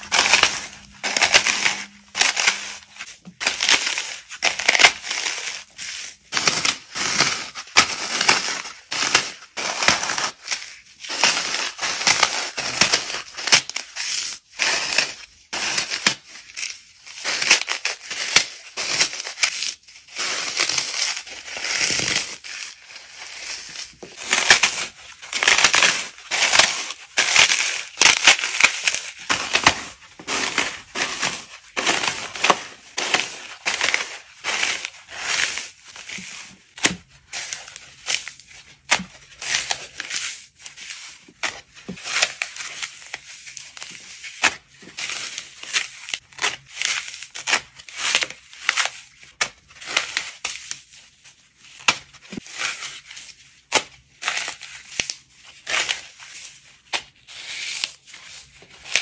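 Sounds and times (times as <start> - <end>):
floral foam crunching by hand: 0.0 - 50.9.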